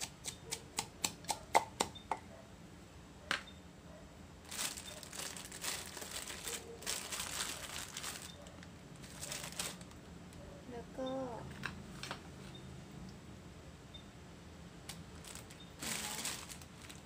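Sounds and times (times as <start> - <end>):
pestle pounding in mortar: 0.0 - 2.2
plastic bags rustling: 4.4 - 10.0, 15.0 - 17.0.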